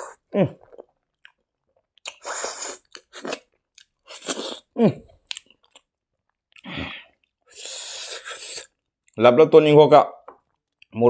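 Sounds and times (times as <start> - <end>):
wet chewing and crunching: 0.6 - 7.4.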